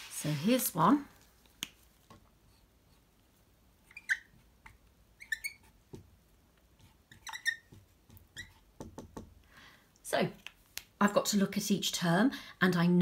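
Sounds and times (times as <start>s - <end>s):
marker squeaking on whiteboard: 3.8s - 5.9s, 6.8s - 8.9s.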